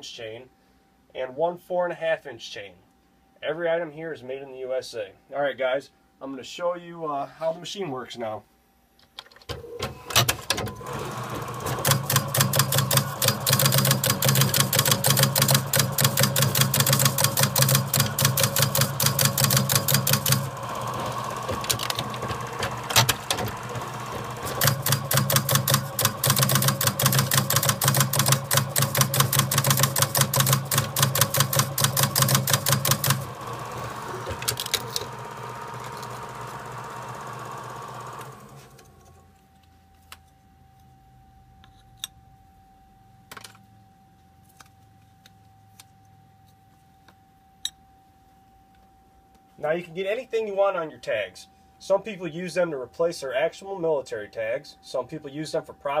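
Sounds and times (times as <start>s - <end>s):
machine stamping metal tags: 9.5s - 33.3s
steady motor hum: 14.3s - 38.9s.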